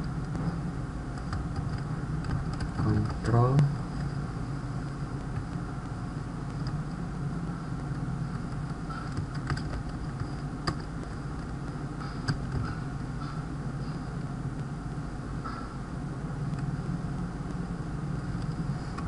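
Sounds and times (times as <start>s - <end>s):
steady low hum: 0.0s - 19.0s
keyboard keystrokes: 1.2s - 3.2s, 8.4s - 12.7s.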